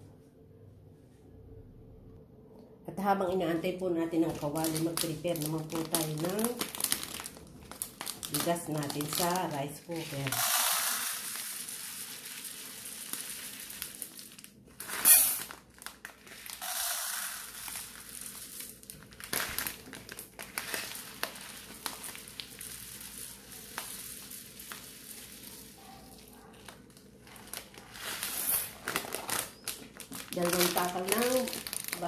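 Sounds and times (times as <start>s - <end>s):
paper bag rustling: 4.2s - 32.0s
dry rice pouring: 9.0s - 26.3s.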